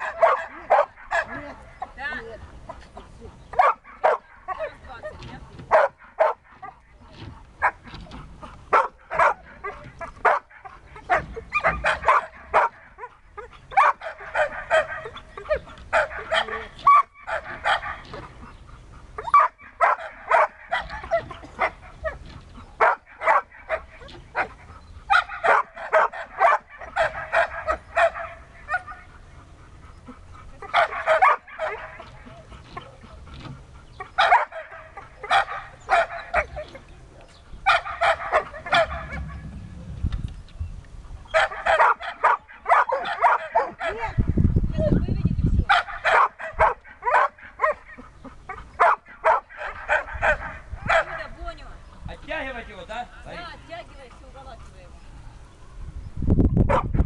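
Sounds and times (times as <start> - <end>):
dog barking and yipping: 0.0 - 1.6, 3.5 - 18.6, 19.2 - 29.3, 30.6 - 36.9, 37.6 - 39.4, 41.3 - 44.3, 45.7 - 51.4, 56.7 - 57.0.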